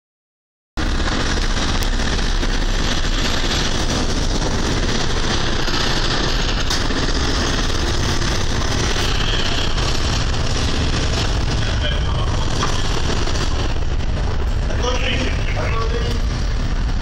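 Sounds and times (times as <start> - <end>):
rushing noise: 0.8 - 17.0
ship engines rumbling: 0.8 - 17.0.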